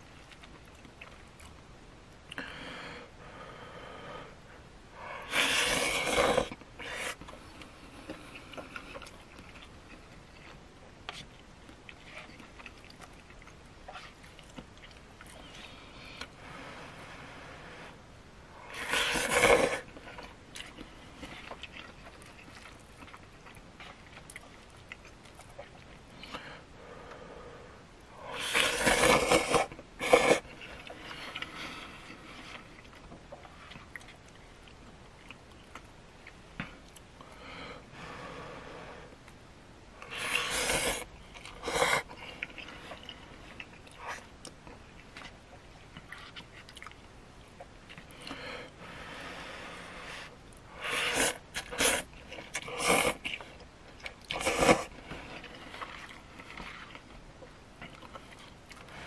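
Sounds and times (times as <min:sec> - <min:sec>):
chewing: 0:00.0 - 0:01.7, 0:05.6 - 0:16.4, 0:18.6 - 0:26.5, 0:28.2 - 0:37.2, 0:40.0 - 0:48.5, 0:50.5 - 0:59.0
person slurping noodles: 0:05.2 - 0:07.2, 0:18.7 - 0:19.9, 0:28.3 - 0:31.0, 0:40.1 - 0:42.1, 0:50.8 - 0:53.2, 0:54.3 - 0:54.9.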